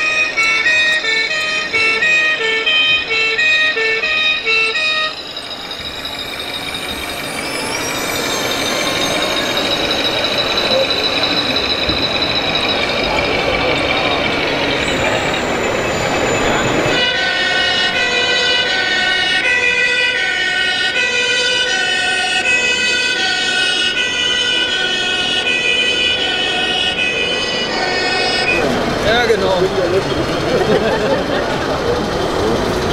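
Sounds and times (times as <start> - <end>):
two-tone siren: 0.0 - 29.0
busy exhibition hall noise: 0.0 - 32.9.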